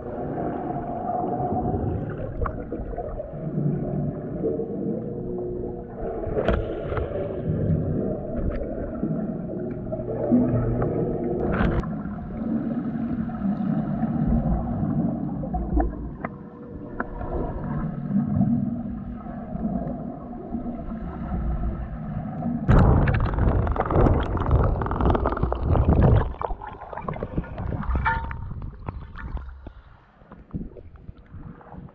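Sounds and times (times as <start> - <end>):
faint steady hums: 0.0 - 23.2
underwater rumble of moving water: 0.0 - 31.9.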